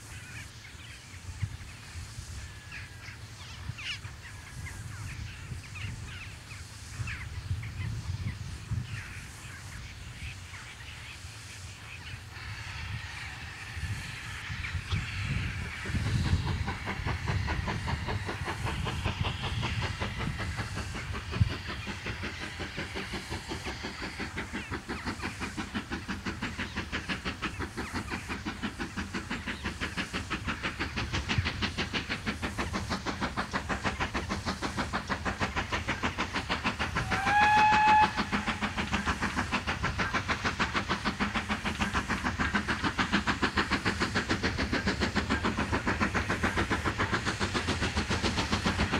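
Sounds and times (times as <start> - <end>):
coaches rumbling on rails: 0.0 - 48.9
steam locomotive exhaust beating: 0.0 - 48.9
steam whistle: 37.0 - 38.7.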